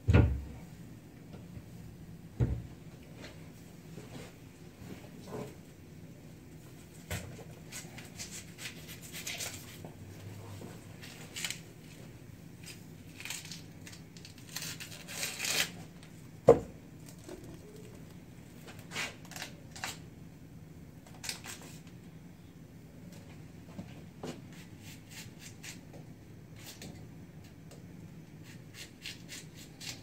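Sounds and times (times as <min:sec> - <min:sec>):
garlic skin crinkling and tearing: 0:12.6 - 0:15.8, 0:18.8 - 0:20.0.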